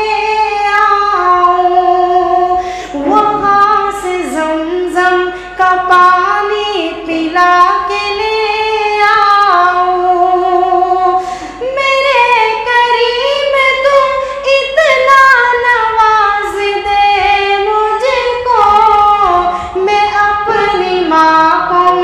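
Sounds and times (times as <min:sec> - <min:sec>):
man singing unaccompanied: 0:03.0 - 0:04.5.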